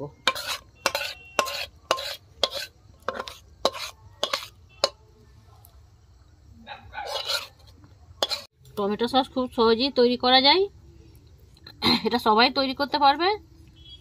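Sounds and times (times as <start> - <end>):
spatula scraping metal pan: 0.1 - 5.0, 7.0 - 8.5.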